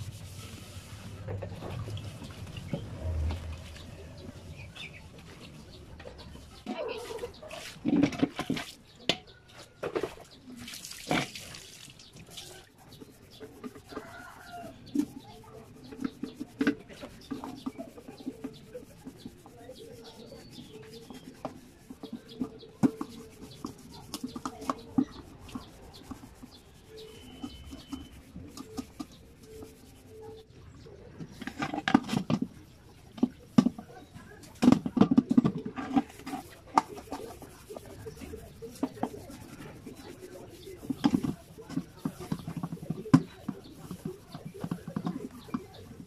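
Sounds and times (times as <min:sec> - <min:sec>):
hands scrubbing pots: 0:00.0 - 0:04.2, 0:06.2 - 0:09.0, 0:09.6 - 0:46.0
water pouring from dipper: 0:10.6 - 0:12.5.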